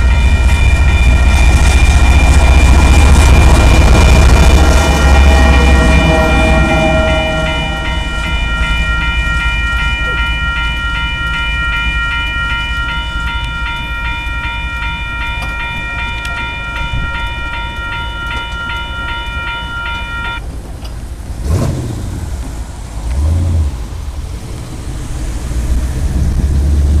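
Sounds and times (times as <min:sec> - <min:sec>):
low rumble of locomotives: 0:00.0 - 0:27.0
locomotive air horn: 0:03.0 - 0:08.3.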